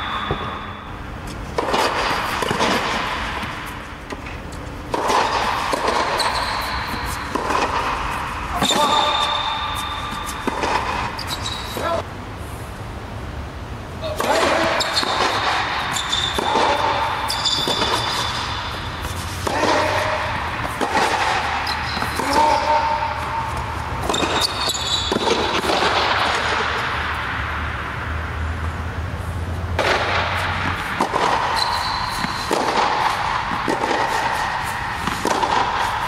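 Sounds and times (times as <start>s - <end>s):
racket hitting tennis ball: 0.0s - 12.0s, 14.1s - 27.7s, 29.7s - 36.0s
tennis ball bouncing: 0.0s - 12.0s, 14.2s - 27.6s, 29.8s - 36.0s
rubber shoes squeaking: 3.6s - 12.0s, 14.6s - 25.6s, 31.2s - 35.2s.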